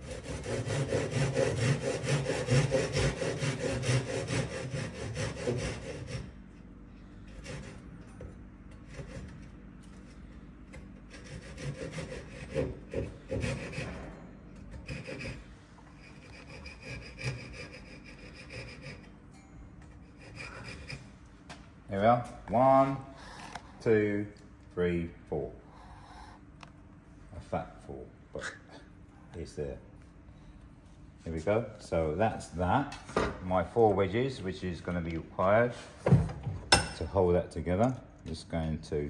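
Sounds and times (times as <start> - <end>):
hand saw cutting wood: 0.0 - 6.4, 7.2 - 8.1, 8.7 - 9.6, 10.2 - 19.1, 20.0 - 21.1.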